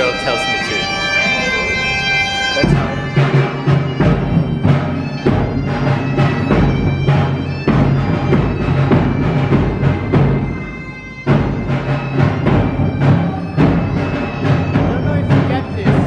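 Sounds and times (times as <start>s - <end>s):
sustained low tones: 0.0s - 11.6s
steady drum beat: 0.0s - 16.0s.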